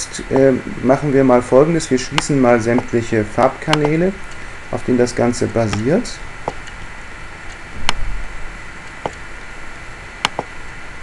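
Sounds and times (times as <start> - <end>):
steady hiss: 0.0 - 11.0
computer mouse clicks: 10.2 - 10.5.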